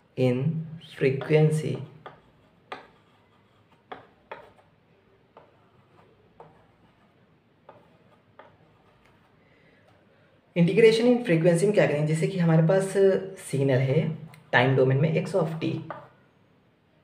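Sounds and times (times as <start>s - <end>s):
chalk ticking on chalkboard: 2.0s - 4.7s, 7.6s - 9.3s.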